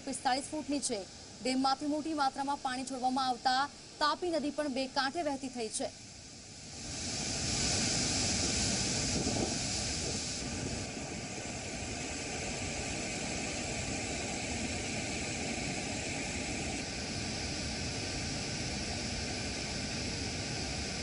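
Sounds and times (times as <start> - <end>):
water rushing roar: 6.2 - 21.0.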